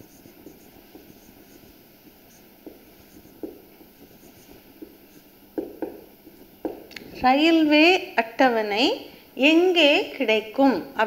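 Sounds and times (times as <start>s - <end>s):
marker writing on whiteboard: 0.2s - 6.9s
marker taps: 2.6s - 7.1s.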